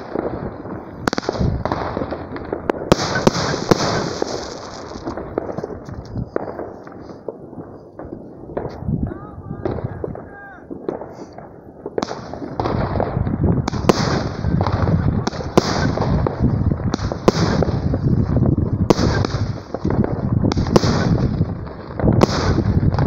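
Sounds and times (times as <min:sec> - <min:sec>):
fireworks battery firing: 0:00.0 - 0:07.3, 0:09.7 - 0:18.0, 0:18.9 - 0:23.0
firework hiss: 0:02.9 - 0:05.2.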